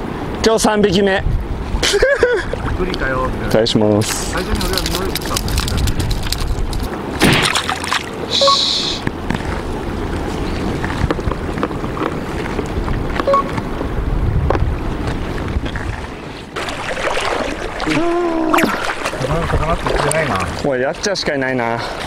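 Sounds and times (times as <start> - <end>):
wind buffeting microphone: 0.0 - 7.3, 9.0 - 20.7
water lapping at rocks: 4.0 - 13.8, 14.6 - 21.2.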